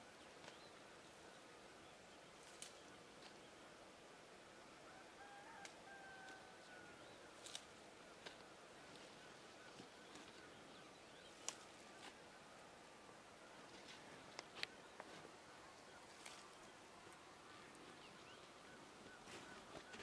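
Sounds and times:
distant fowl calling: 4.8s - 7.3s, 14.6s - 20.0s.

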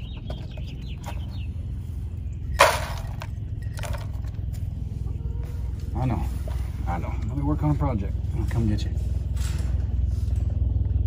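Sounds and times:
birds chirping: 0.0s - 9.3s
steady low rumble: 0.0s - 11.0s
plastic containers clattering: 2.6s - 4.4s.

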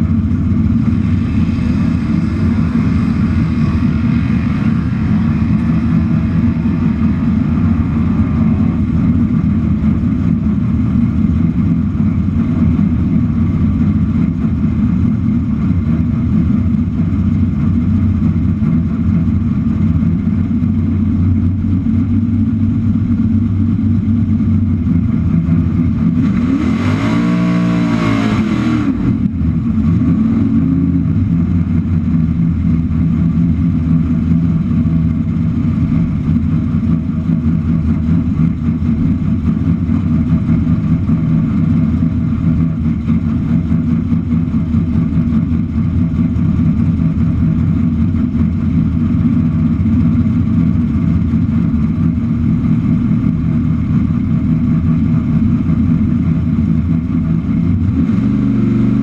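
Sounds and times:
car engine idling loudly: 0.0s - 59.0s
engine revving: 25.2s - 32.1s, 57.4s - 59.0s.

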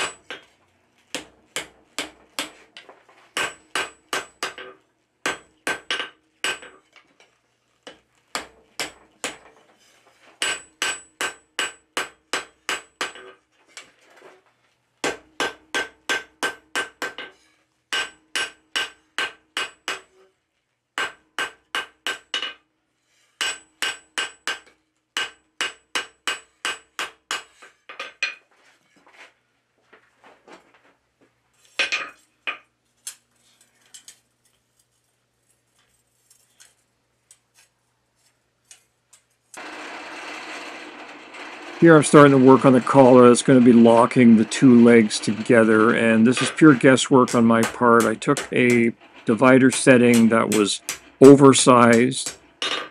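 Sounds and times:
hammer striking steel on anvil: 0.0s - 0.4s, 3.4s - 6.8s, 10.4s - 13.4s, 15.0s - 20.1s, 21.0s - 22.6s, 23.4s - 27.6s, 42.0s - 52.9s.

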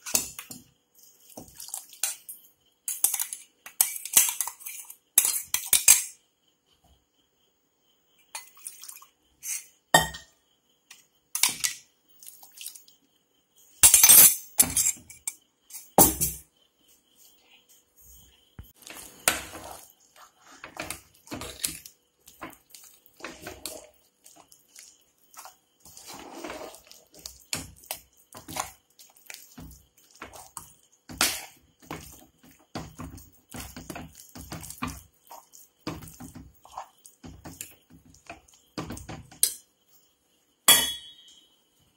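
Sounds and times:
metal ladle scraping pot: 23.2s - 24.4s, 25.4s - 29.2s.

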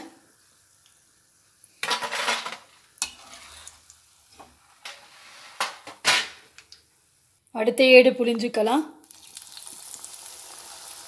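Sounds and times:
oil sizzling: 0.0s - 5.8s, 9.0s - 11.0s
metal spatula scraping and clinking: 1.8s - 3.8s.

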